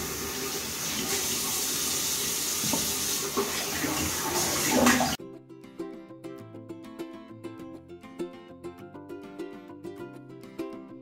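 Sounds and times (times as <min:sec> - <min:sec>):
hands washing under water: 0:00.0 - 0:05.2
tap running into sink: 0:00.0 - 0:05.2.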